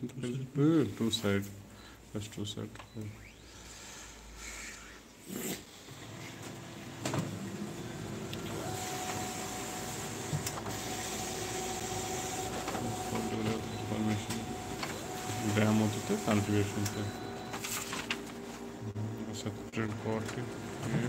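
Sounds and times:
copier motor whirring: 5.9 - 21.0
copier click: 8.3 - 18.3.

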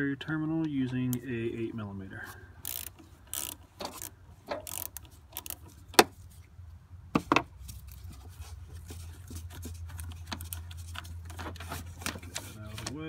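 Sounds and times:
sharp metal clicks: 2.6 - 6.1
small handling knocks: 7.1 - 13.0.

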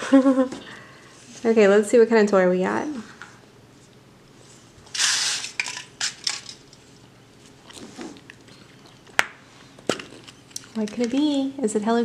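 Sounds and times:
plastic capsule scraping rustle: 4.9 - 6.6.

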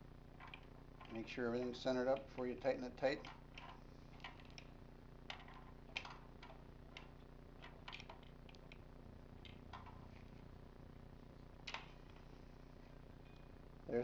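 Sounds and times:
low steady hum: 0.0 - 14.0
small metallic clicks: 0.4 - 1.3, 5.3 - 8.8.

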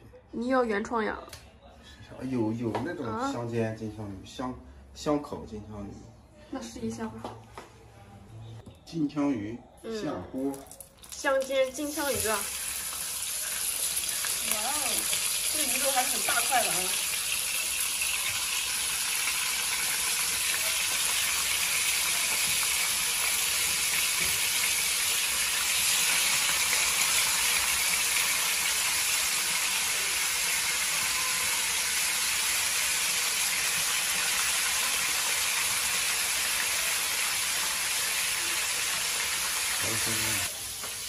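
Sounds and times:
fish sizzling in hot oil: 11.1 - 41.0.

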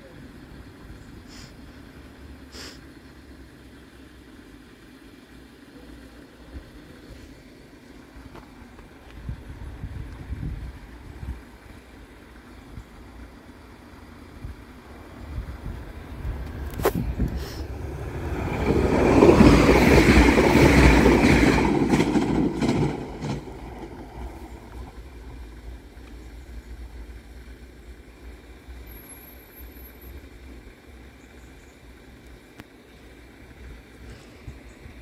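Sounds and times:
train passing rumble: 0.0 - 35.0.

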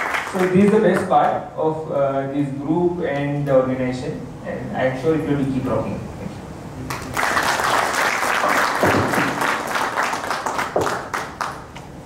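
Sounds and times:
audience applauding: 0.0 - 1.0, 6.9 - 11.8.

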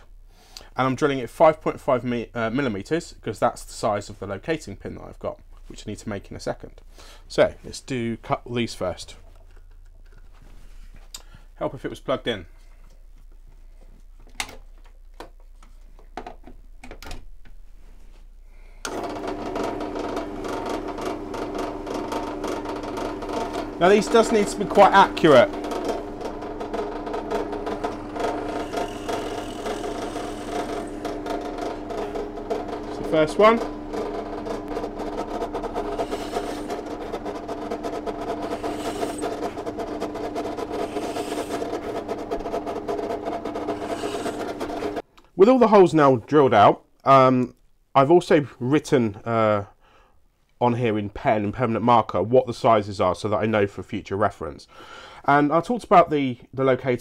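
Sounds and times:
drill press motor humming: 18.8 - 45.0.

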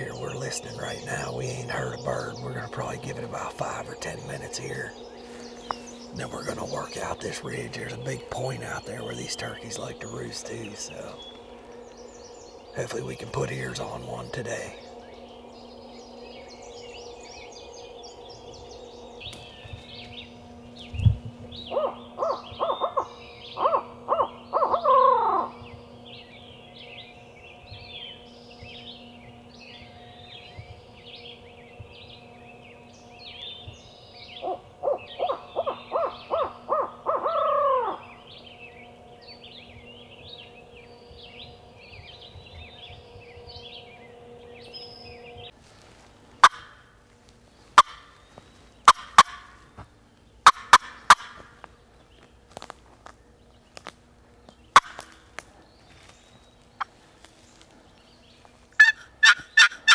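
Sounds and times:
songbirds chirping: 0.0 - 59.9
owl hoots: 21.7 - 25.6, 34.3 - 38.2, 46.4 - 46.8, 58.8 - 59.9.

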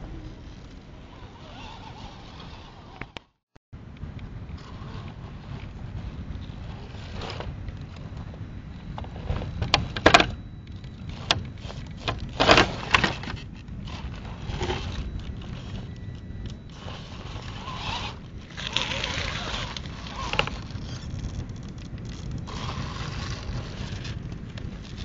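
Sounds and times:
toy car electric motor whining: 1.1 - 3.2, 11.1 - 15.9, 16.5 - 21.4, 22.4 - 24.2
steady low rumble: 3.8 - 25.0.

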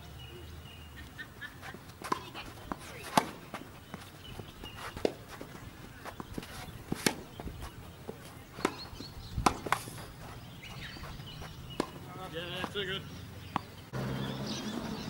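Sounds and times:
shuffling footsteps on court: 1.4 - 13.7
tennis racket hitting ball: 1.7 - 12.8
ball bounces: 2.0 - 4.0, 8.6 - 13.7.

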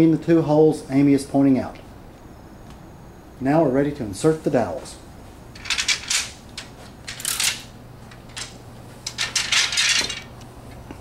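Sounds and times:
wooden dowels clattering: 5.5 - 10.4.

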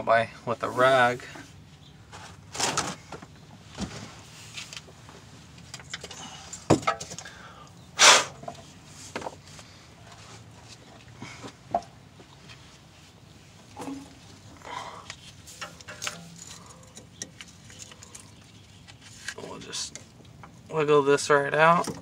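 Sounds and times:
metal clatter: 15.5 - 18.3
metal parts and tools clinking: 15.5 - 18.3.

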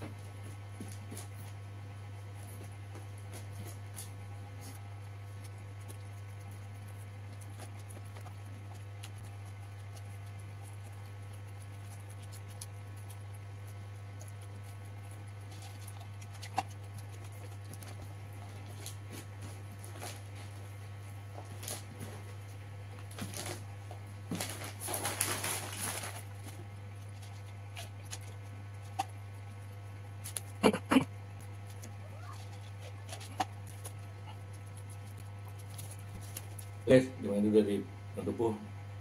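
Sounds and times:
low electrical hum: 0.0 - 39.0
chewing and eating clicks: 2.4 - 20.2, 26.4 - 29.6, 30.2 - 30.8, 31.4 - 36.8
paper wrapper crinkling: 23.0 - 23.6, 24.3 - 28.2.

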